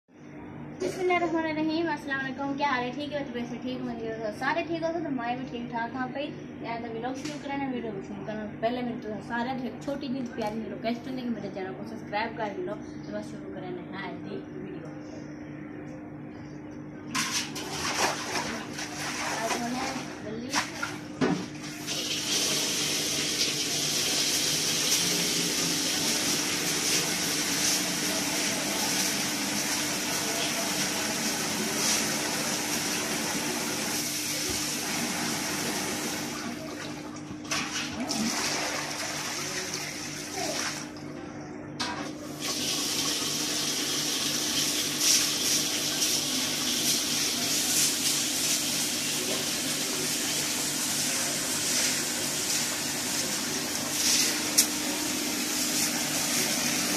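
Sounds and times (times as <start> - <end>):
faint steady hum: 0.1 - 17.4.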